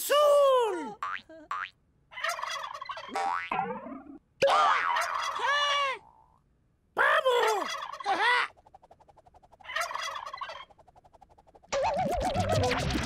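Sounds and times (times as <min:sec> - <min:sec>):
turkey gobbling: 0:02.1 - 0:06.4, 0:07.5 - 0:12.8.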